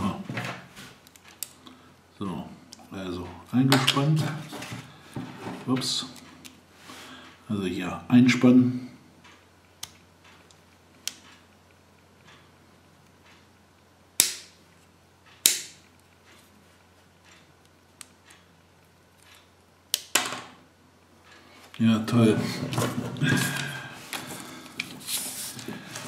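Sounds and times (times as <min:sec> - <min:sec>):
toy launcher flap snapping: 0:14.2 - 0:14.5, 0:15.4 - 0:15.8.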